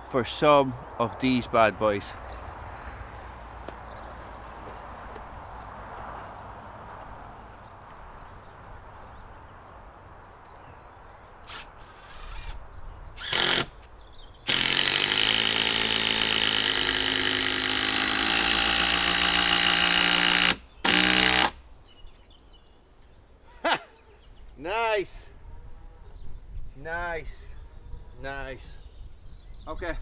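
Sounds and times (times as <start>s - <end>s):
power driver driving into log: 13.2s - 13.7s, 14.5s - 21.6s.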